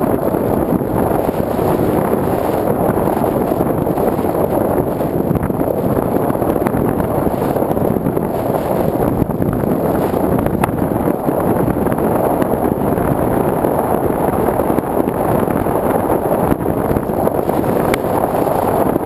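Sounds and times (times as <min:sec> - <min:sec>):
air rushing over microphone: 0:00.0 - 0:19.0.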